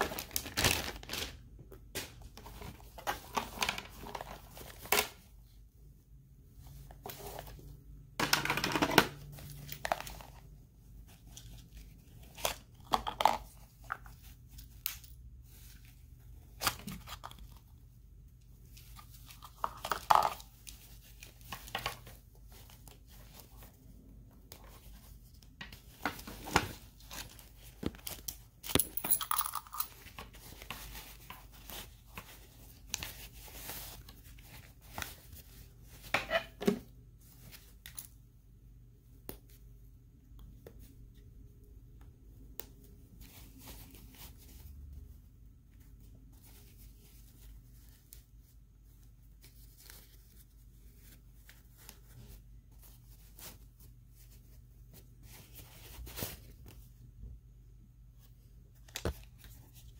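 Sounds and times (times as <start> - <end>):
cloth rustling and scraping: 42.9 - 57.0.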